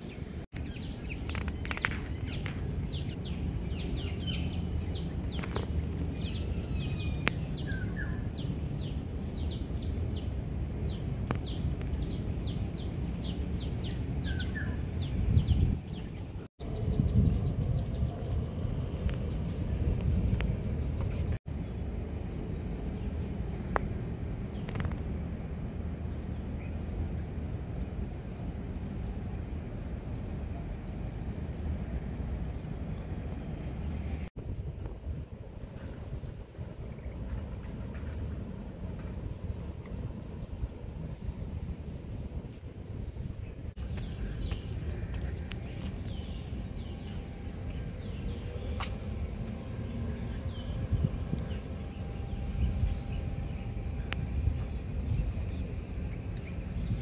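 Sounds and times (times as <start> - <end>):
bird chirping: 0.0 - 24.9
low rumble: 0.0 - 57.0
wind buffeting microphone: 0.0 - 57.0.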